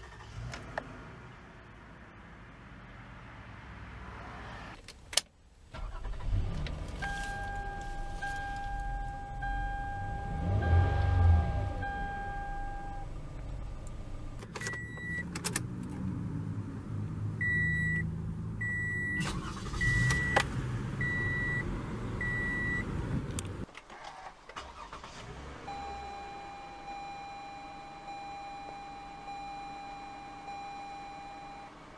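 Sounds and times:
car engine running: 0:05.8 - 0:15.2
dashboard warning beeps: 0:07.0 - 0:13.1, 0:14.6 - 0:15.2, 0:17.4 - 0:18.0, 0:18.6 - 0:20.4, 0:21.0 - 0:21.6, 0:22.2 - 0:22.9, 0:25.7 - 0:31.7
low steady chime tone: 0:07.1 - 0:13.1.

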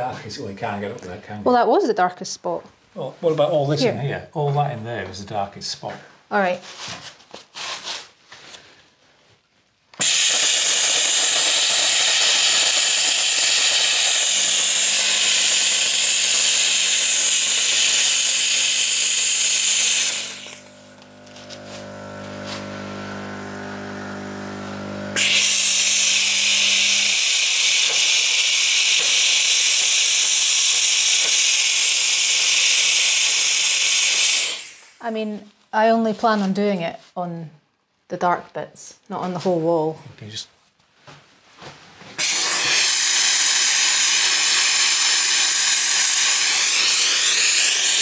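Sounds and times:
steam cleaner hissing: 0:10.0 - 0:35.0, 0:42.2 - 0:48.0.

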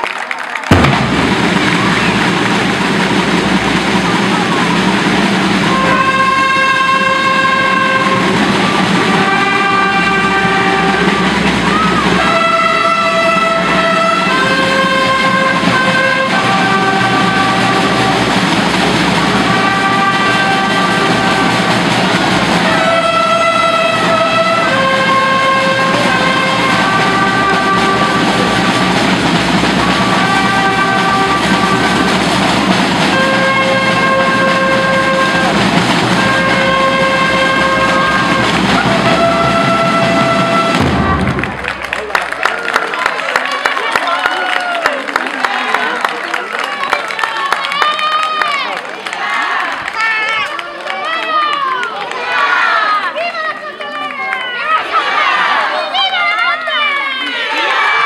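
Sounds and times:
band playing slow march: 0:00.6 - 0:43.5
noisy background: 0:00.7 - 0:45.4.

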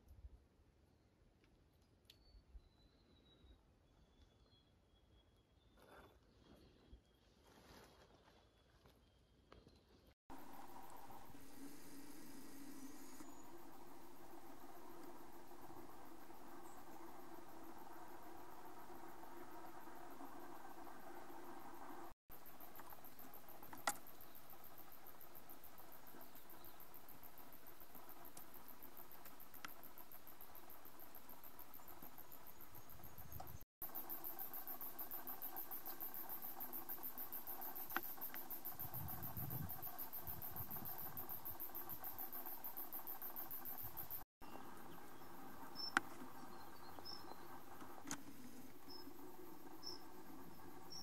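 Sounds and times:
insects chirring: 0:10.3 - 0:51.0.

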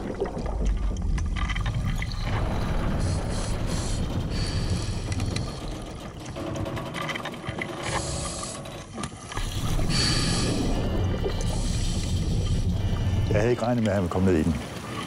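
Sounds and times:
underwater bubbles gurgling: 0:00.0 - 0:06.4, 0:09.2 - 0:15.0
gear knocking against hull: 0:01.0 - 0:10.1.

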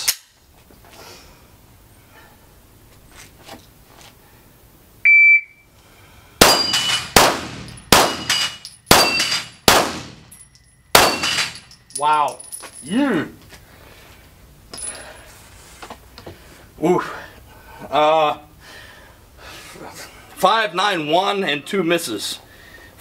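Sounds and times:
shot timer beep: 0:05.1 - 0:05.6
pistol shots: 0:06.4 - 0:10.3, 0:10.9 - 0:11.6
steel plates ringing: 0:06.4 - 0:12.6.

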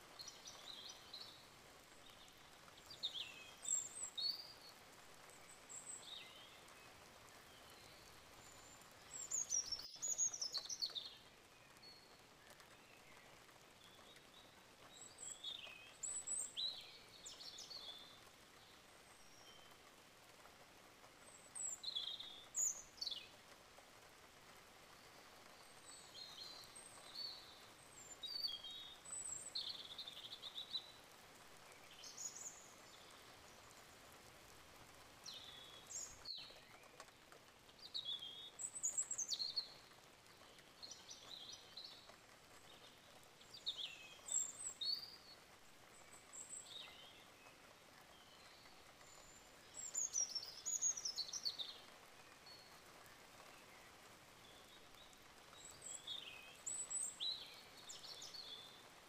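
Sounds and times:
faint steady hiss: 0:00.0 - 0:59.0
small birds chirping: 0:00.1 - 0:59.0.

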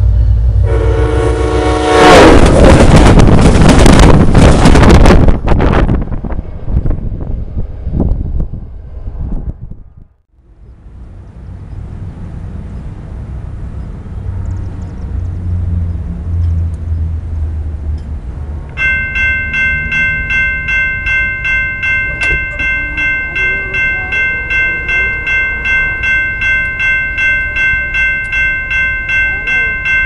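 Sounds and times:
railroad crossing bell ringing: 0:18.7 - 0:30.0.

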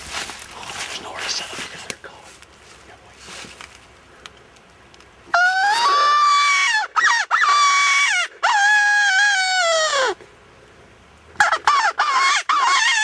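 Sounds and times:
predator call wavering wails: 0:05.3 - 0:10.2, 0:11.4 - 0:13.0.

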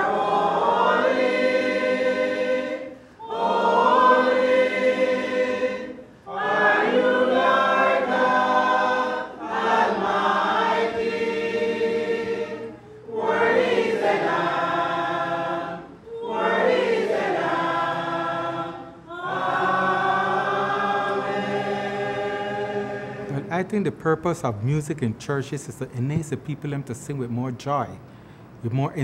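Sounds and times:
choir singing a hymn: 0:00.0 - 0:23.8
singers breathing: 0:02.9 - 0:03.2, 0:28.0 - 0:28.6.

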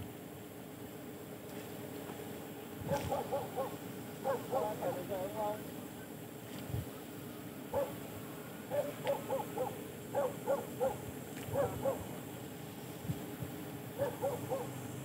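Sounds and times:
background hiss: 0:00.0 - 0:15.0
animal calling: 0:02.8 - 0:05.3, 0:07.7 - 0:08.0, 0:08.7 - 0:12.2, 0:14.0 - 0:14.8.

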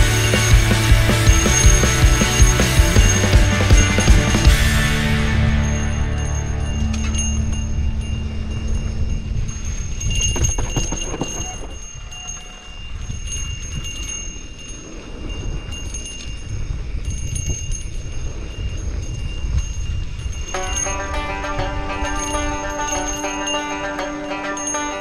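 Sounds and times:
bike rattling and clicking: 0:00.0 - 0:04.6, 0:09.4 - 0:14.4
wind rumble on microphone: 0:06.0 - 0:23.2.

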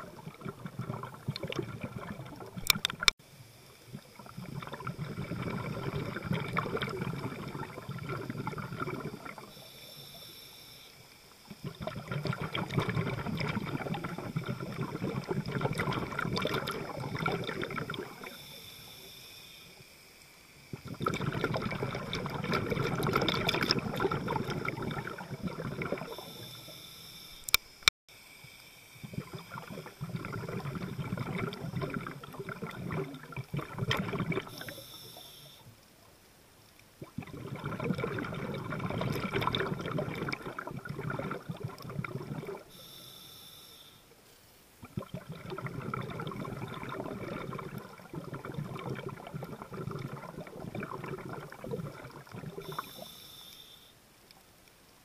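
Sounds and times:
exhaled bubbles gurgling: 0:00.0 - 0:03.2, 0:03.8 - 0:10.3, 0:11.4 - 0:19.1, 0:20.6 - 0:26.8, 0:29.0 - 0:35.6, 0:37.0 - 0:42.8, 0:44.8 - 0:53.2
sharp clicks: 0:02.6 - 0:03.2, 0:27.4 - 0:27.9
regulator hiss: 0:09.2 - 0:11.7, 0:17.8 - 0:20.9, 0:25.9 - 0:30.1, 0:34.5 - 0:35.8, 0:42.6 - 0:44.8, 0:52.6 - 0:54.0.

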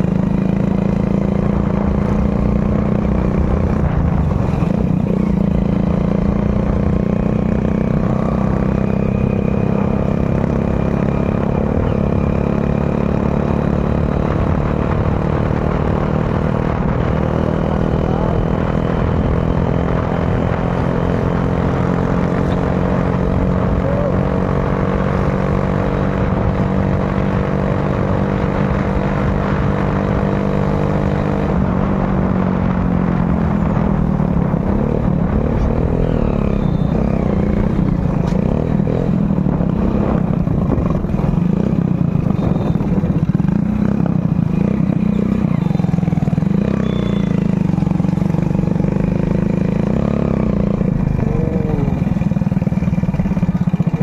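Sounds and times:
motorcycle engine running: 0:00.0 - 0:54.0
wind rumble on microphone: 0:01.3 - 0:07.1, 0:31.4 - 0:45.6.

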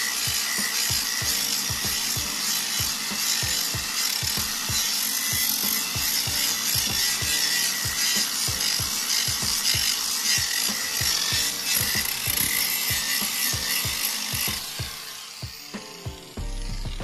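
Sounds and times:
angle grinder grinding metal: 0:00.0 - 0:17.0
background music with steady beat: 0:00.0 - 0:17.0.

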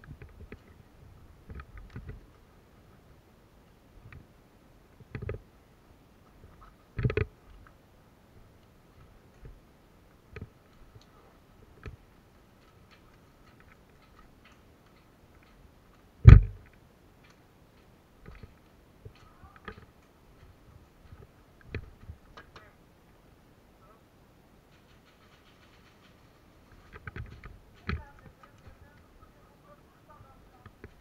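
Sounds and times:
light clicks and knocks: 0:06.5 - 0:07.8, 0:08.6 - 0:22.7, 0:24.7 - 0:29.4
loud thump: 0:16.2 - 0:16.6.

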